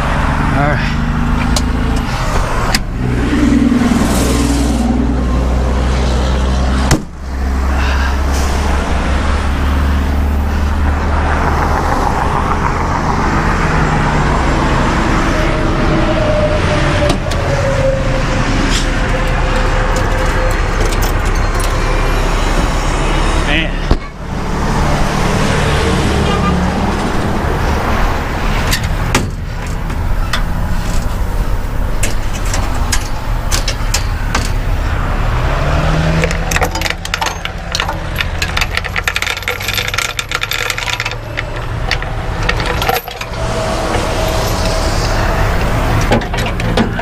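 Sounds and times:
diesel engine idling: 0:11.8 - 0:47.0
tow chains rattling and clinking: 0:18.9 - 0:22.5, 0:28.4 - 0:34.8, 0:36.0 - 0:47.0.

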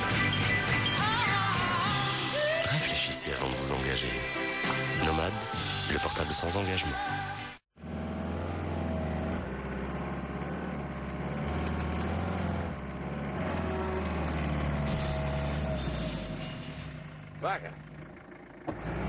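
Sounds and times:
pickup truck engine rumbling: 0:07.1 - 0:19.0.

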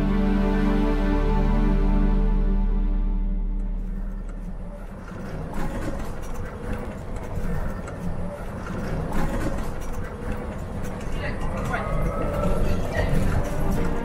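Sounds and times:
vehicle driving over cobblestones: 0:03.4 - 0:14.0
vehicle body rattling: 0:03.9 - 0:14.0.

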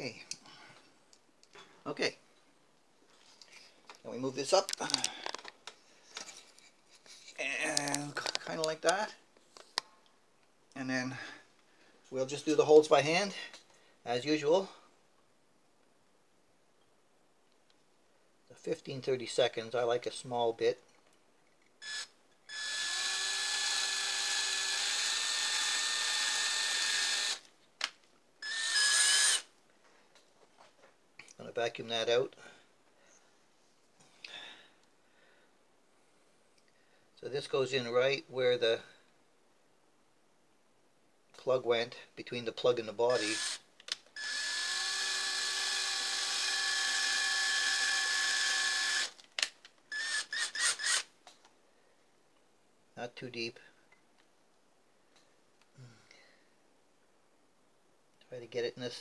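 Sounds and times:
cordless drill whining: 0:21.8 - 0:27.5, 0:28.4 - 0:29.5, 0:43.1 - 0:43.6, 0:44.2 - 0:49.2, 0:49.9 - 0:51.1
drill click: 0:28.4 - 0:29.4, 0:43.2 - 0:43.6, 0:44.2 - 0:51.1.

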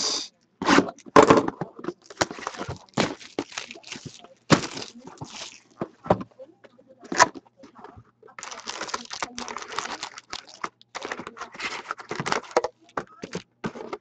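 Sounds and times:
card packs crinkling: 0:01.8 - 0:06.2, 0:08.4 - 0:14.0.

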